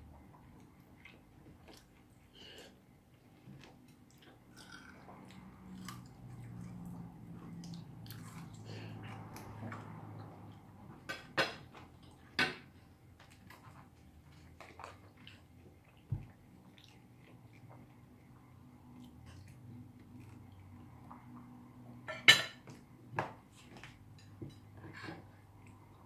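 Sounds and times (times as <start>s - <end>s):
cutlery clinking on plates: 22.1s - 22.7s.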